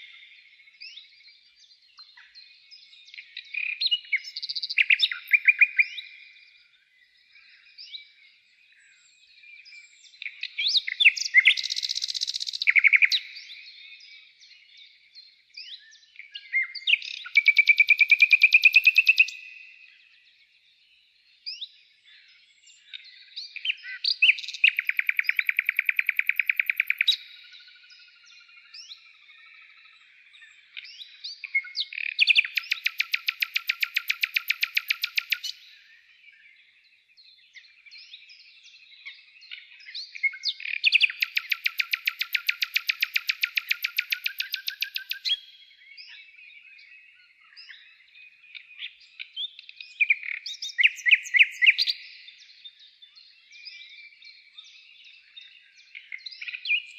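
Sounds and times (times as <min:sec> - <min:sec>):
songbirds chirping and whistling: 0:00.0 - 0:56.9
fast bird trills: 0:17.2 - 0:19.4, 0:24.2 - 0:27.4, 0:32.3 - 0:35.6, 0:40.8 - 0:45.4.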